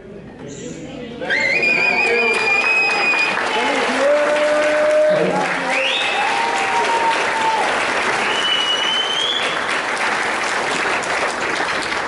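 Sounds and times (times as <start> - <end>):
high whistle: 1.2 - 3.4, 5.8 - 6.2, 8.2 - 9.7
audience applauding: 1.6 - 12.0.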